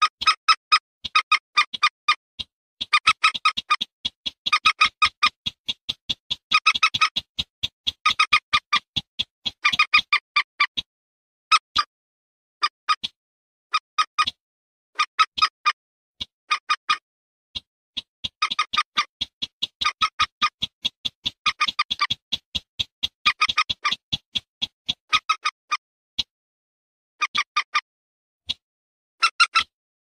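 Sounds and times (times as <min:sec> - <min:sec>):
bird kek calls: 0:00.0 - 0:10.9, 0:15.0 - 0:17.0, 0:17.6 - 0:26.3, 0:27.2 - 0:27.8.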